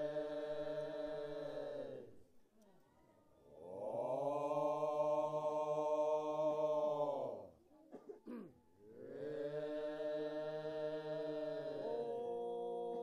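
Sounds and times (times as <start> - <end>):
deep chanted drone: 8.9 - 13.0.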